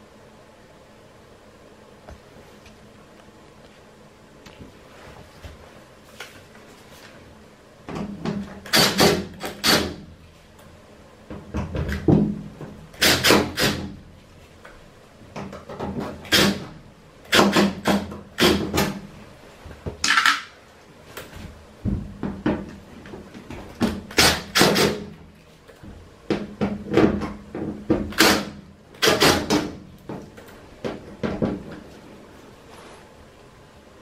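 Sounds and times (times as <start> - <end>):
impact driver hammering: 8.3 - 10.1, 13.0 - 14.0, 17.3 - 19.0, 23.8 - 25.1, 26.3 - 29.8.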